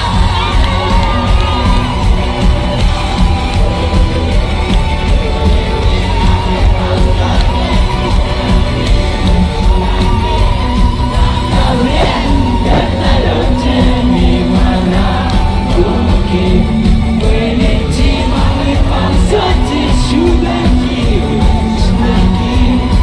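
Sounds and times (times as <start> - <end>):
crowd noise: 0.0 - 23.0
drums: 0.0 - 23.0
man singing: 11.5 - 23.0.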